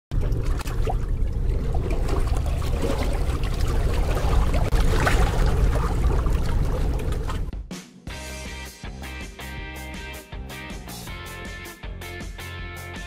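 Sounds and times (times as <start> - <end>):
heavy low rumble: 0.1 - 7.5
rushing water: 0.1 - 7.5.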